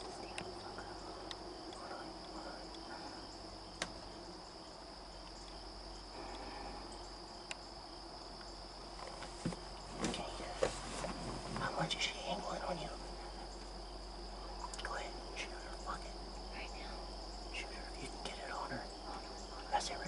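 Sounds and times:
crickets calling: 0.0 - 20.0
faint sharp clicks: 14.6 - 15.0.

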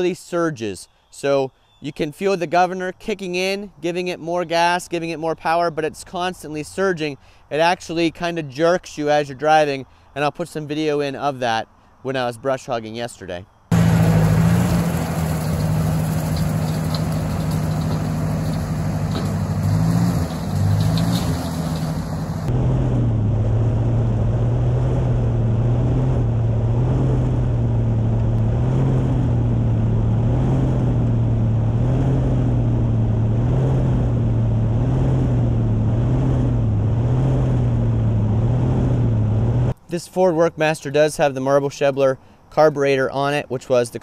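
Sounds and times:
tractor engine surging under load: 13.7 - 39.8.

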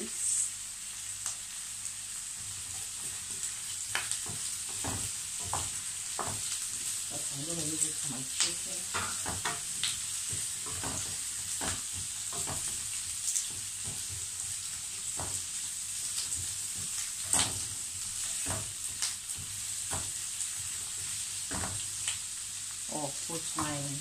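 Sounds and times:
vegetables sizzling in oil: 0.0 - 24.0.

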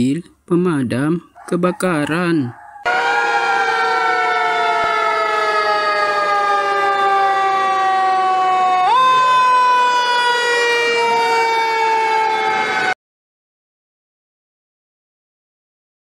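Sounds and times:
fire engine siren wailing: 2.5 - 13.0.

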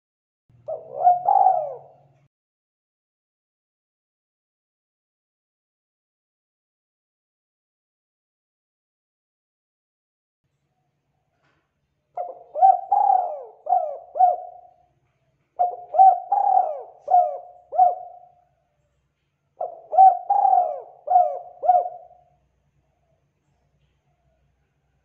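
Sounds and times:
dove cooing: 0.7 - 2.3, 12.2 - 14.9, 15.6 - 18.4, 19.6 - 22.4.

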